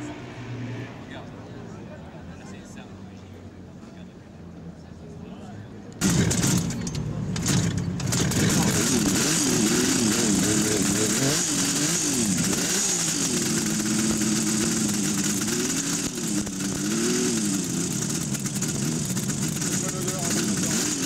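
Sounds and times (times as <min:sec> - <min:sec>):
motorcycle engine revving: 0:06.0 - 0:21.0.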